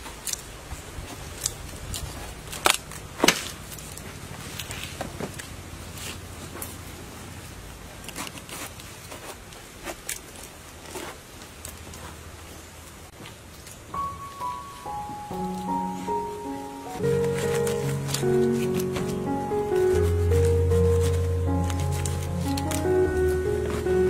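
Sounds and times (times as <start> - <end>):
small clicks and cracks: 0.0 - 0.5, 1.1 - 5.6, 8.0 - 12.2, 17.1 - 19.2
fruit rind cracking: 1.4 - 4.8.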